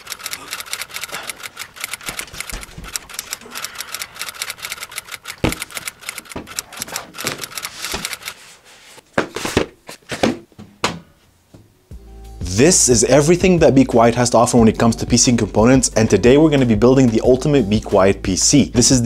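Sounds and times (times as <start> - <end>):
typewriter keys clacking: 0.0 - 8.4.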